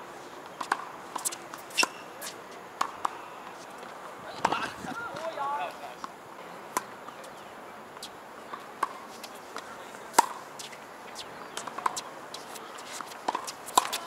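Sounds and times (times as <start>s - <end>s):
tennis balls struck by rackets: 0.6s - 3.6s, 8.0s - 14.0s.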